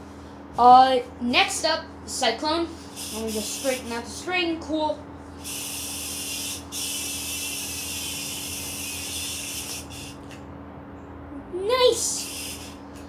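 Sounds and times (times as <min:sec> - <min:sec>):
yo-yo spinning hiss: 0:02.8 - 0:04.2, 0:05.4 - 0:10.4, 0:11.7 - 0:13.0.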